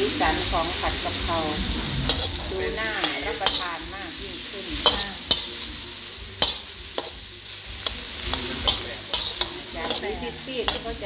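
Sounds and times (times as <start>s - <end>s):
meat sizzling in a wok: 0.0s - 11.0s
metal spatula scraping a pan: 0.1s - 5.8s, 6.4s - 11.0s.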